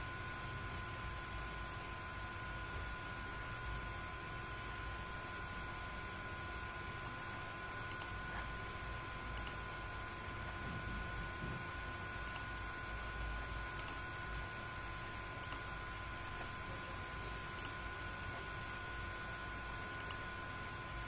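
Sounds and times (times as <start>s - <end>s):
faint electrical whine: 0.0s - 21.0s
computer mouse clicks: 7.9s - 8.5s, 9.4s - 9.6s, 12.2s - 12.5s, 13.8s - 14.0s, 15.4s - 15.7s, 17.5s - 17.8s, 20.0s - 20.3s.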